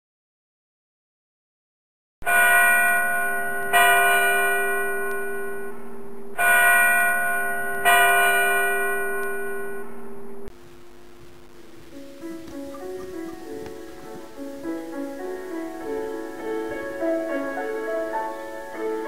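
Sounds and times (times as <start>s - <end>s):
church bell ringing: 2.2s - 5.8s, 6.4s - 9.9s.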